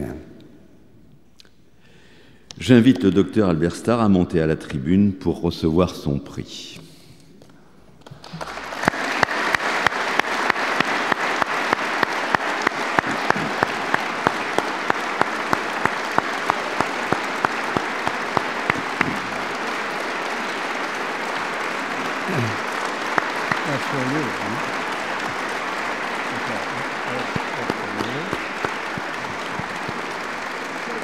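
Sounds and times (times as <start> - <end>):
audience applauding: 8.0 - 31.0
sharp claps: 8.0 - 31.0.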